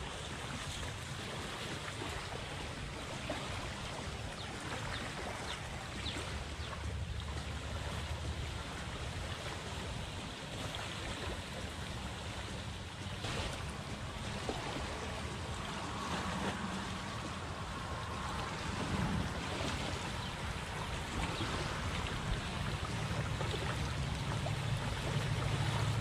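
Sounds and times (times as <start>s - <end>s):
seawater lapping: 0.0s - 26.0s
water splash: 13.0s - 26.0s
wind on microphone: 13.2s - 26.0s.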